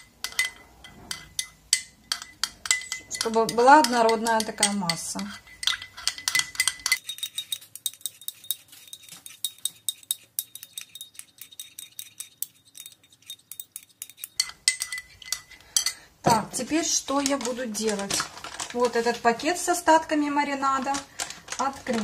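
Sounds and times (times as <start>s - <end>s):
spoon clinking in ceramic cup: 0.0s - 16.0s.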